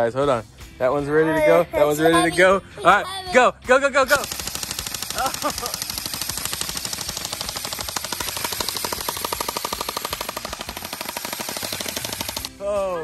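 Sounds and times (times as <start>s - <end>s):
airsoft rifles firing full auto: 4.1s - 12.6s.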